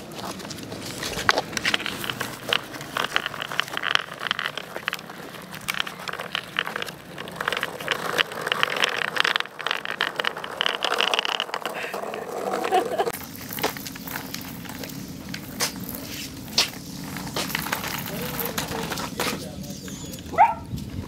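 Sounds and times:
skateboard wheels rolling on asphalt: 0:00.0 - 0:21.0
dog claws clicking on pavement: 0:00.1 - 0:21.0.

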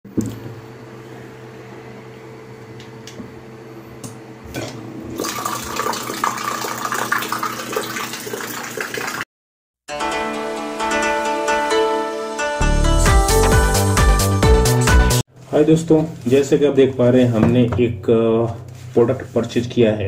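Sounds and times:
water pump humming: 0:04.0 - 0:09.2
plucked-string music: 0:09.9 - 0:14.3.

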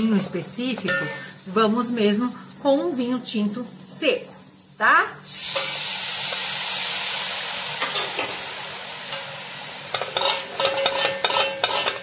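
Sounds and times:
wine sizzling in hot pan: 0:00.0 - 0:12.0
wooden spoon scraping metal pan: 0:09.9 - 0:12.0.

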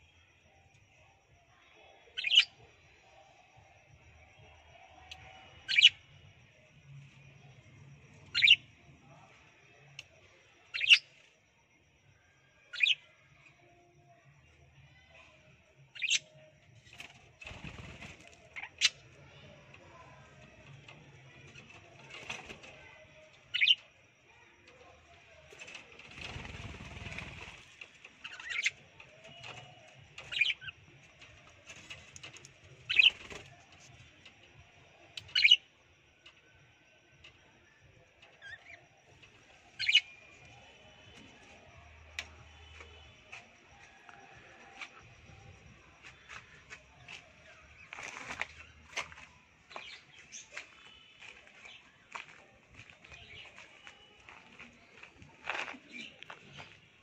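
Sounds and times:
wings fluttering: 0:16.8 - 0:19.0, 0:25.5 - 0:30.5, 0:31.4 - 0:34.0, 0:46.1 - 0:49.2.

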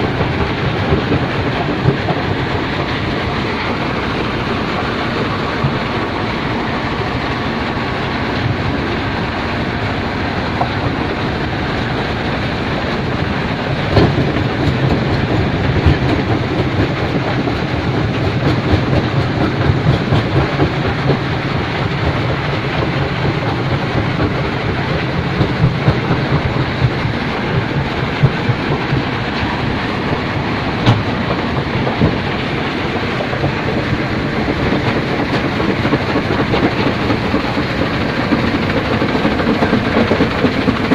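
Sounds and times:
stone crusher and conveyor rattling: 0:00.0 - 0:40.9
sharp knocks: 0:30.8 - 0:40.9.

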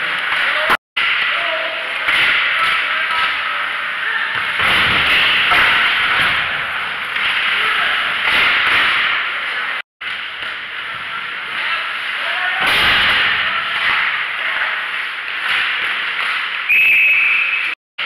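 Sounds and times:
skates and sticks scraping ice: 0:05.1 - 0:12.6, 0:13.6 - 0:16.7
referee's whistle blast: 0:16.7 - 0:17.8.

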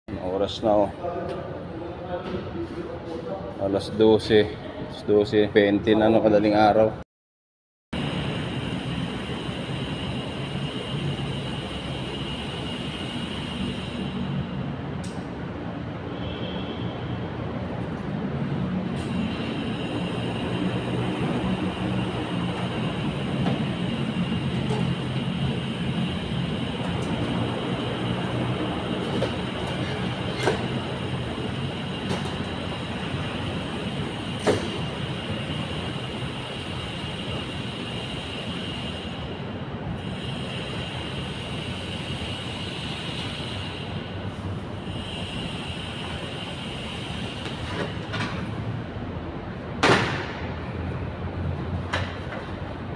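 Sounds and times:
hiss: 0:08.0 - 0:14.6, 0:19.0 - 0:39.3, 0:40.0 - 0:47.8
steady mechanical drone: 0:08.0 - 0:52.9.

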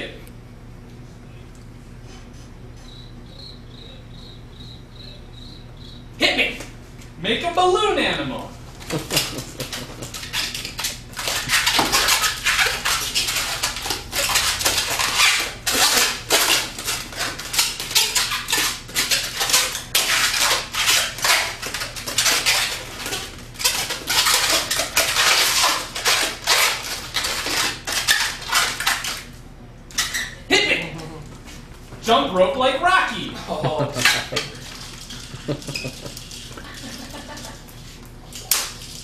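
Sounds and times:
balloon squeaking and rubbing: 0:09.0 - 0:29.1.

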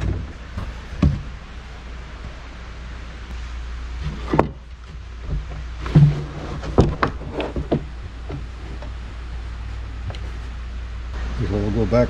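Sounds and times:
wooden boards knocking and clattering: 0:00.0 - 0:01.4, 0:04.0 - 0:09.0
steady low hum: 0:00.0 - 0:12.0.

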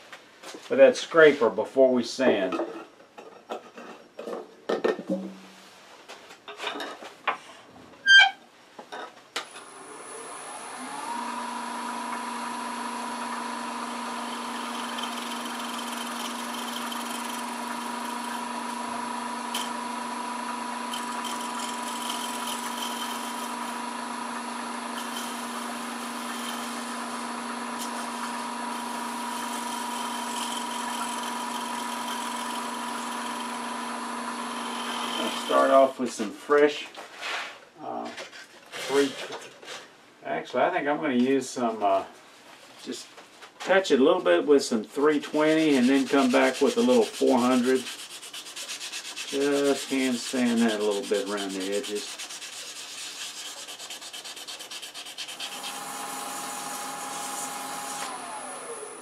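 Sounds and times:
wood lathe running: 0:09.6 - 0:35.8, 0:45.3 - 0:59.0
scraper on spinning wood: 0:14.2 - 0:18.7, 0:20.9 - 0:23.9, 0:34.6 - 0:35.6, 0:45.3 - 0:56.3.

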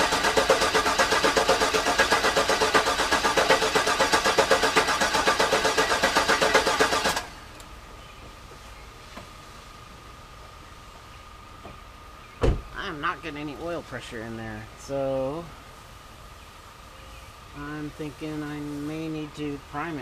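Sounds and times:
starter cranking engine: 0:00.0 - 0:07.6.

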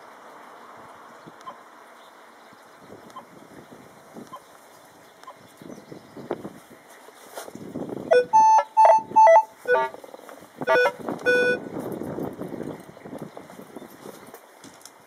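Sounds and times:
metal detector beeps: 0:08.1 - 0:09.9, 0:10.7 - 0:11.6.

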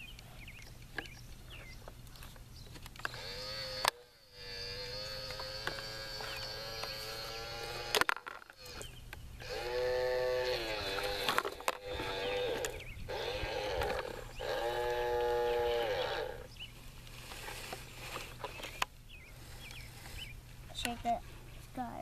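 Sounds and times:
toy electric motor whining: 0:03.0 - 0:16.5.

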